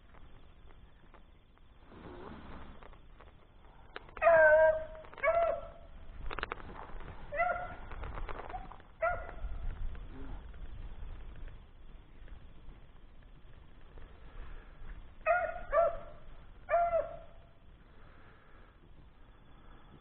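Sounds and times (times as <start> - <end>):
hound barking: 4.2 - 5.9, 7.3 - 7.8, 8.5 - 9.5, 15.2 - 17.4.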